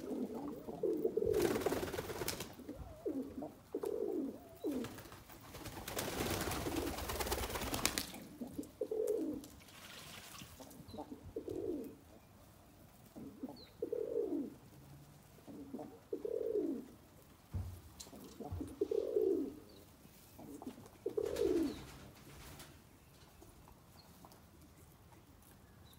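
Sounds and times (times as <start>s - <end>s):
pigeons cooing: 0.0s - 9.5s, 10.6s - 12.0s, 13.1s - 14.6s, 15.4s - 17.0s, 18.1s - 19.8s, 20.4s - 22.0s
wings flapping: 1.3s - 2.6s, 4.7s - 8.2s.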